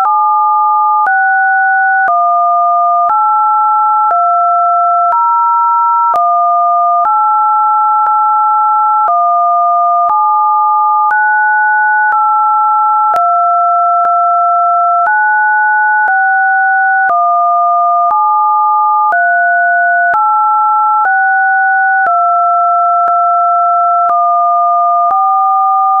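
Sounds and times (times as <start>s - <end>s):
electronic sine tones: 0.0s - 3.2s, 7.8s - 20.2s.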